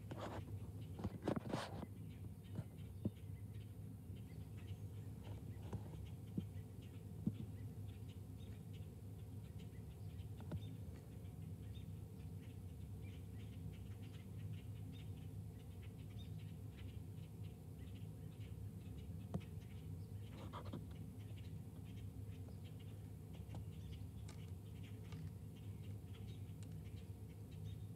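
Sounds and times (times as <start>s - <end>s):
steady low hum: 0.0s - 27.9s
bird pecking seeds: 23.4s - 27.3s.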